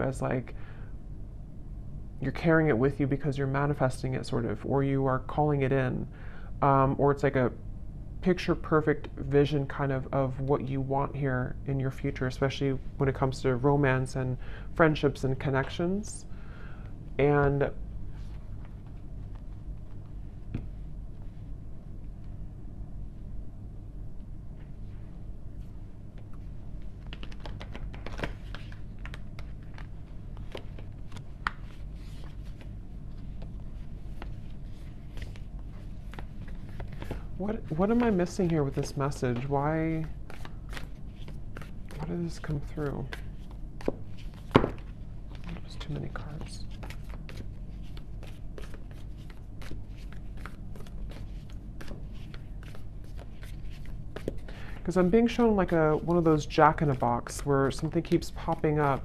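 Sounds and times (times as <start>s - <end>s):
steady low hum: 0.0s - 59.0s
cards being shuffled: 26.2s - 59.0s.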